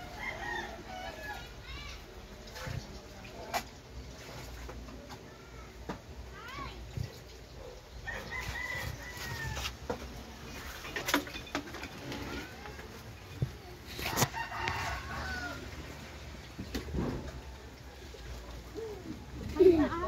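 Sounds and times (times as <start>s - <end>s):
rooster crowing: 0.0s - 1.5s, 8.0s - 9.7s, 14.2s - 15.9s.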